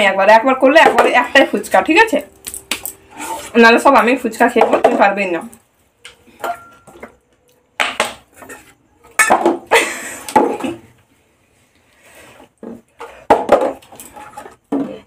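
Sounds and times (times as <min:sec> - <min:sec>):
plastic bottle clattering on floor: 0:07.8 - 0:09.7, 0:10.3 - 0:10.9, 0:12.6 - 0:15.0
woman laughing: 0:09.7 - 0:10.4.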